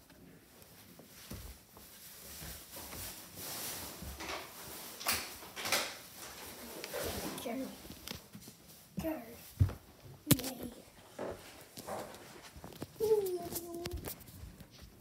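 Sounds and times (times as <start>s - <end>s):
footsteps on wooden stairs: 9.5s - 13.1s.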